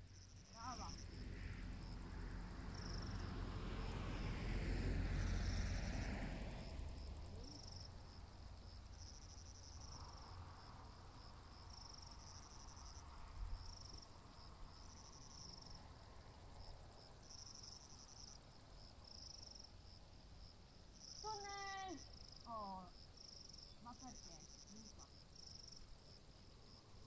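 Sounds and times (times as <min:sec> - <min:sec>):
crickets chirping: 0:00.0 - 0:27.0.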